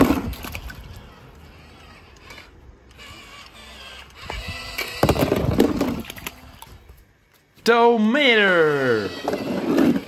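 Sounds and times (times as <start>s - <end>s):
toy cars rattling down plastic slide: 0.0s - 6.5s, 8.9s - 10.0s.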